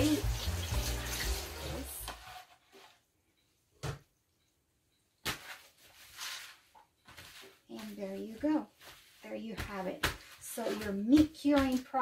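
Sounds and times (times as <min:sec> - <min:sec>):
running tap water: 0:00.0 - 0:02.1
paper towels rustling: 0:05.3 - 0:12.0.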